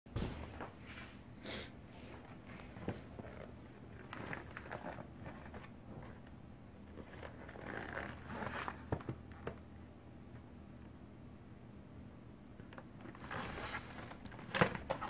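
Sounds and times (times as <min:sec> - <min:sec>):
cardboard box rustling and scraping: 0:06.9 - 0:09.2, 0:13.1 - 0:15.0.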